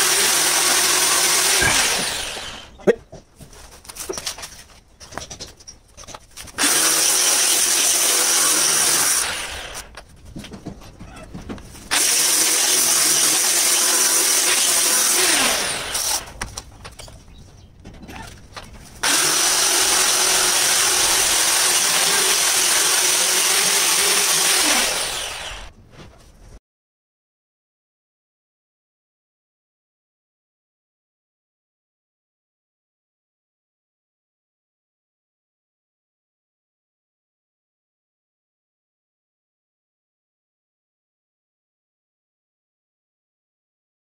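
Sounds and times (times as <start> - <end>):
grinder motor winding down: 0.0 - 2.7, 11.9 - 16.3, 19.0 - 25.7
angle grinder grinding stone: 0.0 - 2.8, 6.6 - 9.9, 11.9 - 16.3, 19.0 - 25.7.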